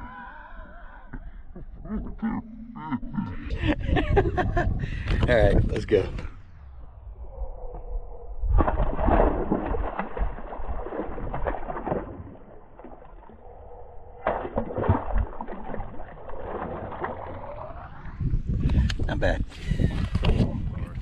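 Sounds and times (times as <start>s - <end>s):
fish splashing in water: 8.5s - 18.0s.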